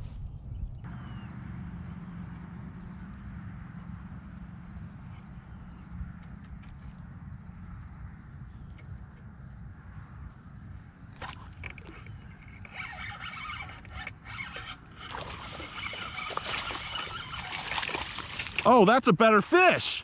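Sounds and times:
wind rumble on microphone: 0.0s - 18.6s
fishing reel clicking whir: 11.2s - 18.6s.

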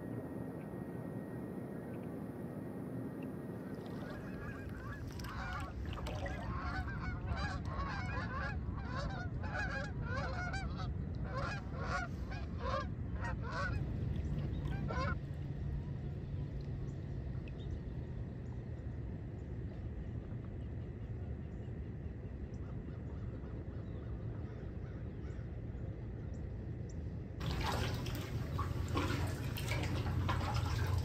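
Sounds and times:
geese honking in flight: 3.9s - 13.9s, 14.7s - 15.2s.

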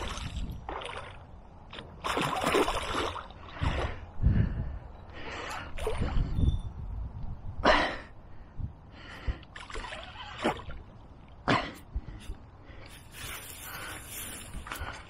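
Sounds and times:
wind buffeting microphone: 0.0s - 1.6s, 3.4s - 9.6s
fish splashing and thrashing: 0.0s - 3.8s.

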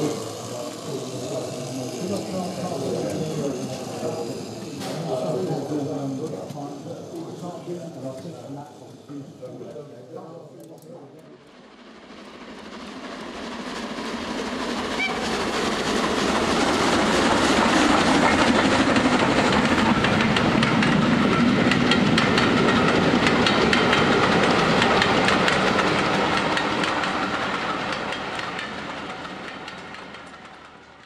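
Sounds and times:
train wheels clickety-clack: 12.0s - 31.0s.

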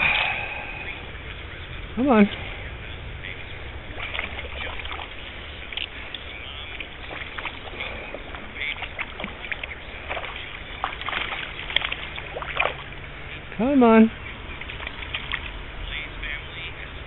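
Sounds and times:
rushing water: 0.0s - 17.0s
fish splashing at water surface: 3.3s - 13.5s, 14.2s - 15.8s.

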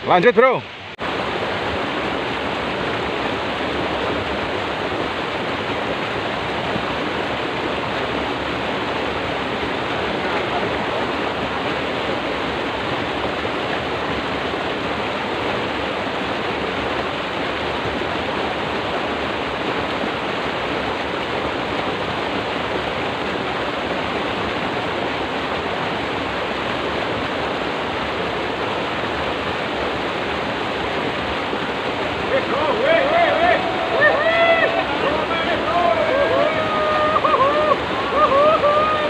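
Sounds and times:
water rushing in a ditch: 0.0s - 39.0s.

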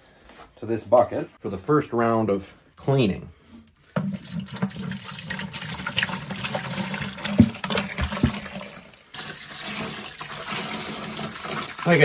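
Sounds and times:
liquid pouring into a bucket: 3.8s - 12.0s.

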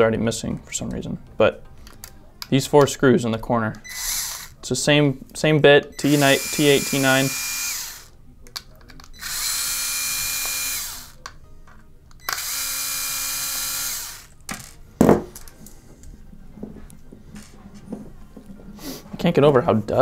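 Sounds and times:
electric screwdriver motor whine: 3.9s - 4.6s, 6.0s - 8.2s, 9.2s - 11.2s, 12.2s - 14.3s.

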